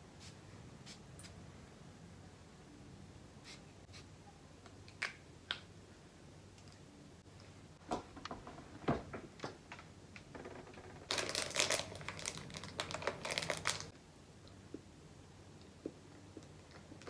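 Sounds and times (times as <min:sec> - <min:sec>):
wrapper crinkling: 0:11.0 - 0:13.9.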